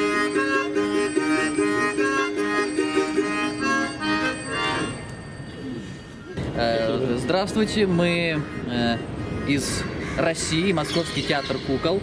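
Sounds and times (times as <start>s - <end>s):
instrumental melody: 0.0s - 8.4s.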